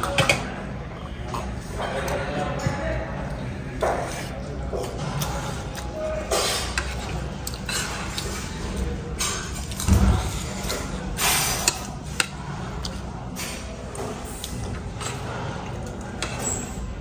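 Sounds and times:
cutlery scraping on a plate: 6.2s - 14.2s.

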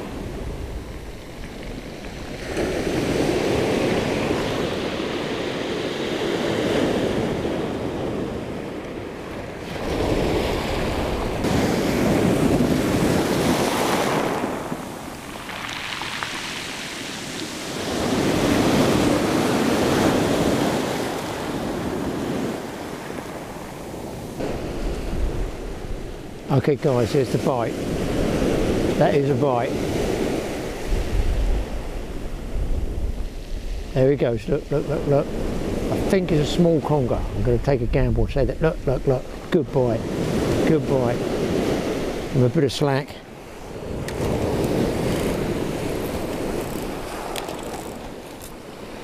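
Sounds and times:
wind on the microphone: 0.0s - 42.6s, 43.2s - 49.0s
rough sea breaking on shingle: 9.6s - 22.2s, 43.9s - 49.0s.

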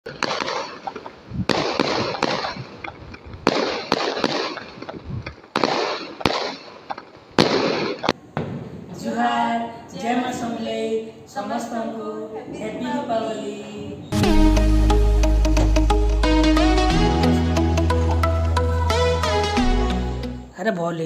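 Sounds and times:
fireworks crackling: 0.0s - 9.0s
fireworks bangs: 0.0s - 9.1s.

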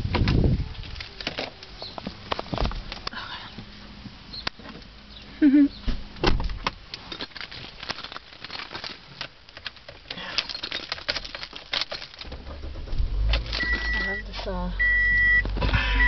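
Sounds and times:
car engine rumble: 0.0s - 16.0s
car keys jangling: 7.0s - 14.2s.

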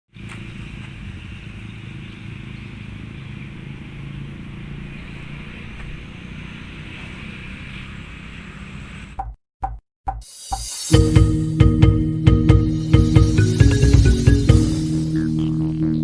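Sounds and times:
road traffic hum: 0.1s - 9.4s, 11.0s - 16.0s
low engine drone: 11.0s - 16.0s.

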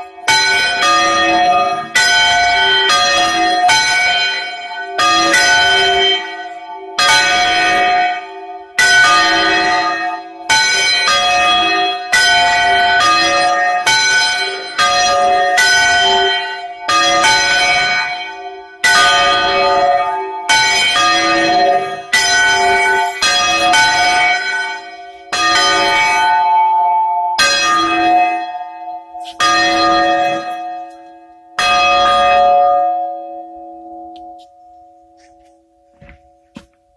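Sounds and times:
church bells ringing: 0.0s - 36.9s.

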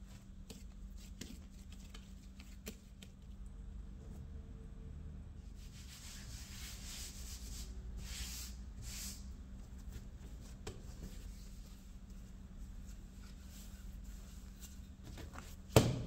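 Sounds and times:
hand swishing flour on worktop: 5.6s - 15.6s.

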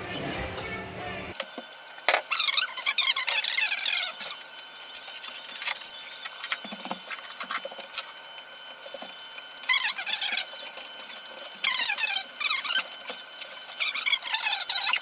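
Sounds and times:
screen material squeaking and rubbing: 1.7s - 15.0s.

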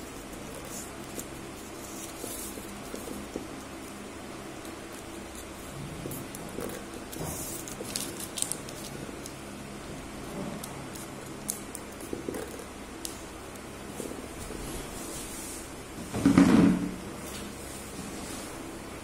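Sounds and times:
steady low hum: 0.0s - 19.0s
paper folding rustles and crackles: 4.6s - 9.4s.

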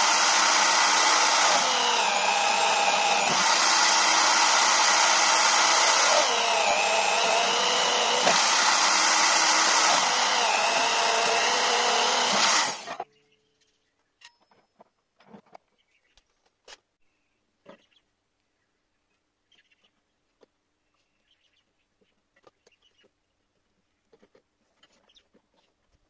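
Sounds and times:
drill press motor whining: 0.0s - 13.0s.

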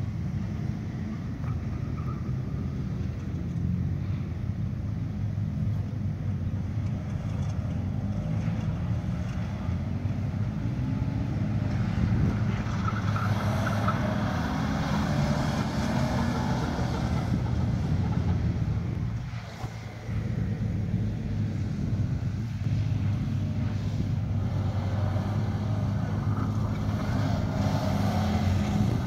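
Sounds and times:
car engine revving: 7.1s - 29.0s.

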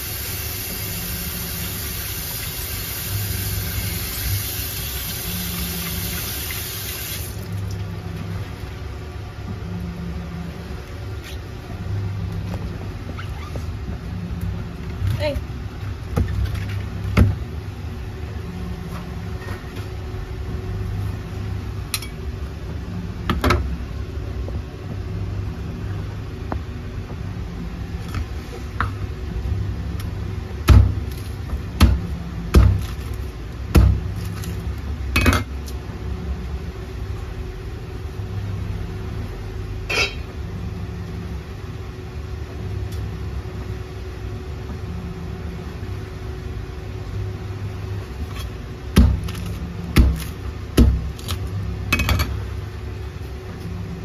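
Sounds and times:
cleaver chopping on cutting board: 49.0s - 51.4s.

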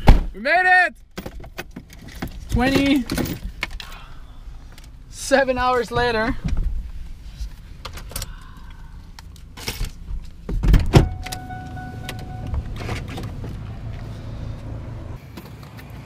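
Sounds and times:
car door thump: 10.5s - 13.1s
steady electronic tone: 11.0s - 12.9s.

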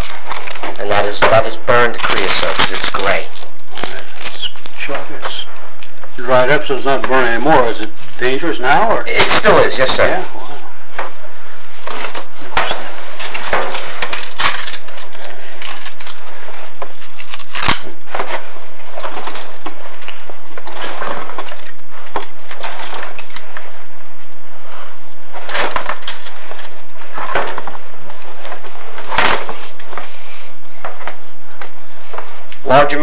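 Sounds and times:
camera scraping inside flue: 10.6s - 32.5s.

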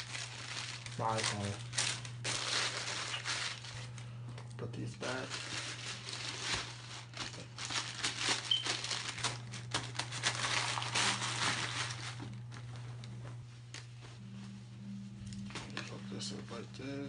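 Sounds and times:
tissue paper crinkling: 0.0s - 4.1s, 5.0s - 14.5s.

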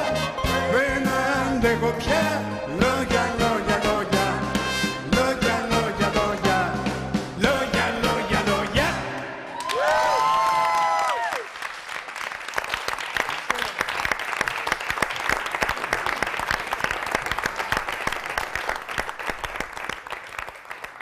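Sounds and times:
studio audience applauding: 9.5s - 21.0s.

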